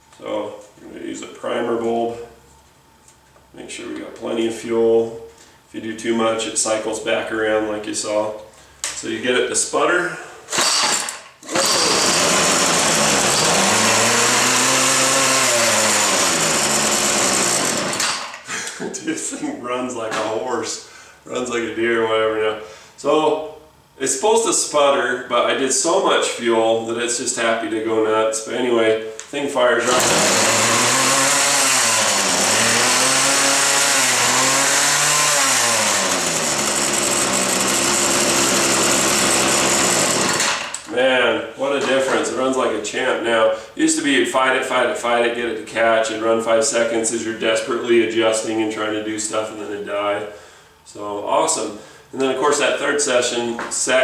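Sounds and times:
string trimmer engine running: 10.5s - 18.4s, 29.8s - 40.9s.

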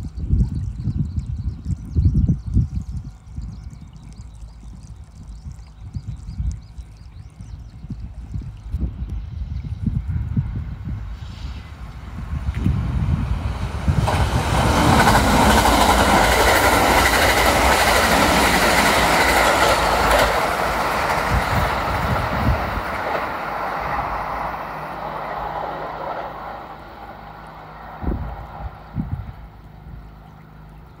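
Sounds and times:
electric train passing on rails: 9.2s - 30.7s.

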